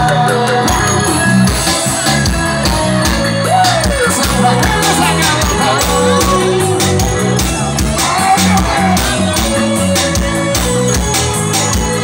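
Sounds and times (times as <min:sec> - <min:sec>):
singer's voice: 0:03.4 - 0:09.9.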